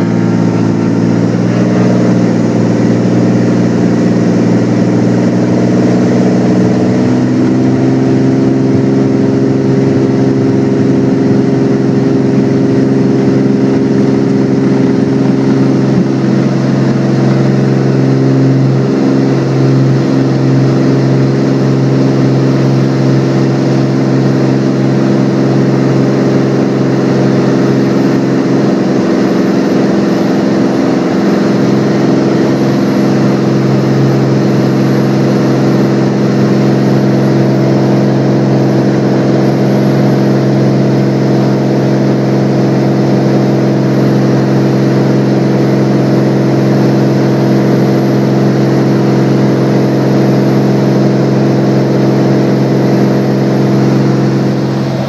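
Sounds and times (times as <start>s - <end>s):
aircraft engine and propeller: 0.0s - 55.0s.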